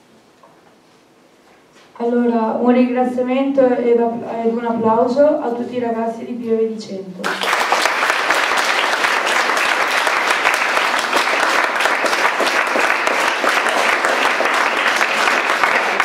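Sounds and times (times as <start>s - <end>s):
audience applause: 7.2s - 16.0s.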